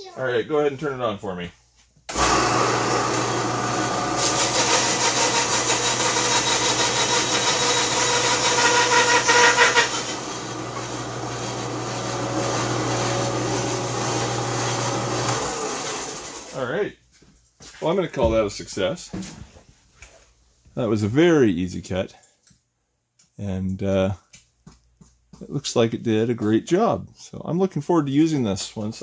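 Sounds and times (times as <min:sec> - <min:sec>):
bandsaw blade cutting wood: 0:02.1 - 0:16.6
bandsaw running with hum: 0:02.1 - 0:16.6.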